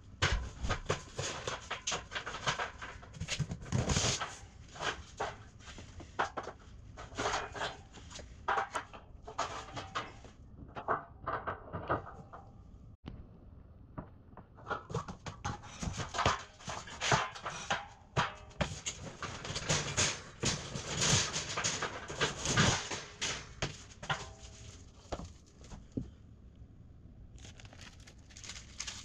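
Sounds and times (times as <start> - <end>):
plastic bag rustling: 27.3 - 29.0
cardboard box tearing and scraping: 27.4 - 29.0.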